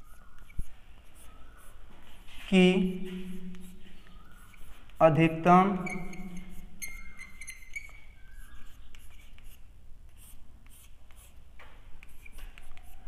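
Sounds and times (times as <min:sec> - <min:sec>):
chalk scratching on blackboard: 0:00.0 - 0:11.4, 0:12.0 - 0:13.0.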